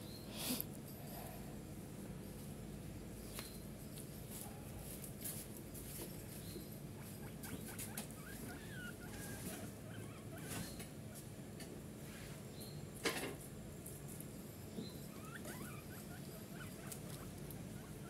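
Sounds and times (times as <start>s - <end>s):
guinea pigs nibbling vegetables: 3.9s - 11.3s, 12.9s - 18.0s.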